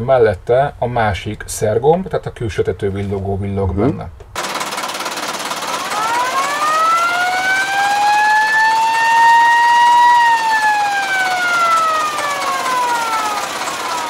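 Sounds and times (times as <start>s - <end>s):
fire engine siren wailing: 5.7s - 14.0s.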